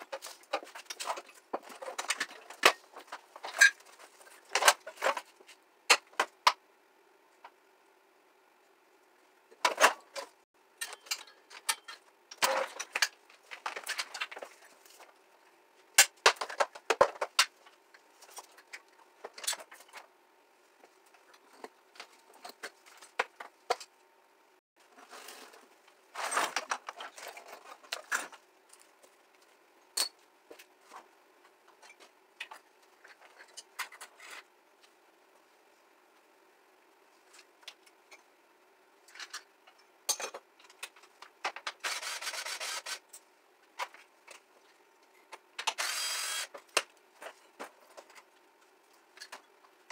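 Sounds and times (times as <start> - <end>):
metal and plastic parts clattering: 0.0 - 6.6, 9.5 - 15.1, 16.0 - 20.1, 24.9 - 28.4.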